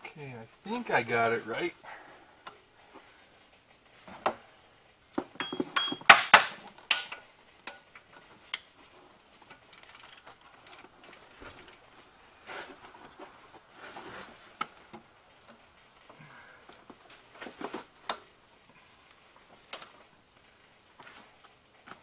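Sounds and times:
tools and metal parts clinking: 5.3 - 8.3.

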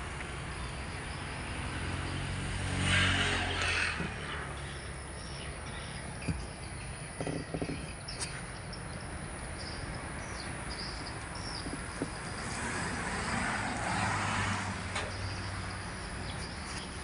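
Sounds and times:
vehicle passing: 0.0 - 6.1, 9.9 - 17.0.

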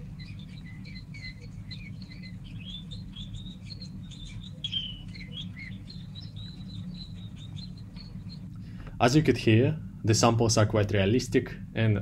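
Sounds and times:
canary chirping and trilling: 0.0 - 8.6
steady low hum: 0.0 - 12.0.

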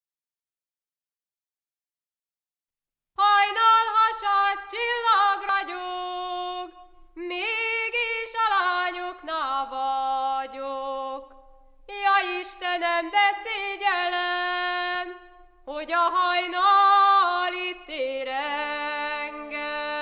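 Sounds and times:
woman singing unaccompanied: 3.2 - 20.0.

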